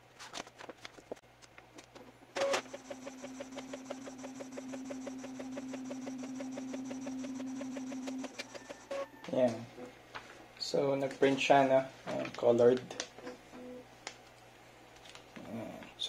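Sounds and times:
printer humming and ticking: 0:02.4 - 0:09.6.

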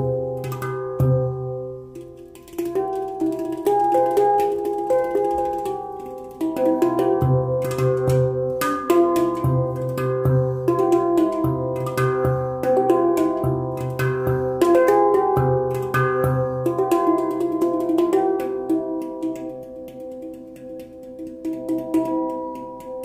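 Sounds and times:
handpan played with fingers: 0:00.0 - 0:23.0.

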